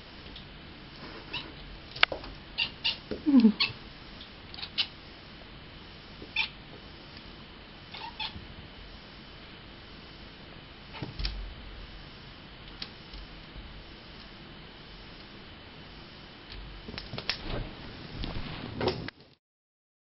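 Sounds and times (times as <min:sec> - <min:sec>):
cat chirping: 0:01.3 - 0:01.6, 0:02.6 - 0:03.8, 0:06.3 - 0:06.6, 0:07.9 - 0:08.4.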